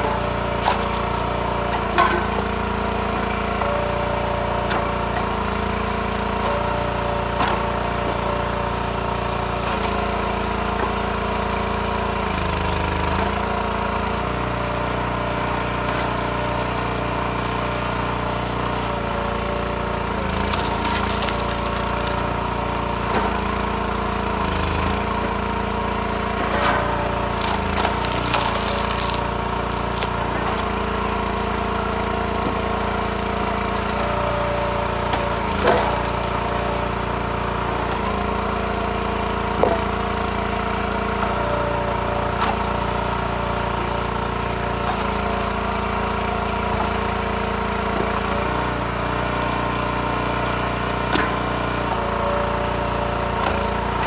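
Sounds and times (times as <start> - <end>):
gasoline engine running: 0.0 - 54.0
wood splitting cracks: 0.4 - 2.5, 19.6 - 25.5, 26.2 - 31.4, 35.0 - 36.7, 44.8 - 45.5, 53.2 - 54.0.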